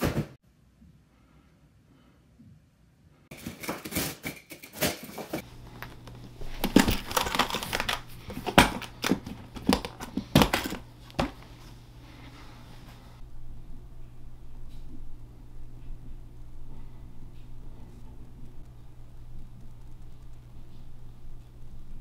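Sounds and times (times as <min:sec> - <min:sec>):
tape tearing: 0:03.3 - 0:11.5
packing material crinkling: 0:04.8 - 0:13.2
low steady hum: 0:05.4 - 0:22.0.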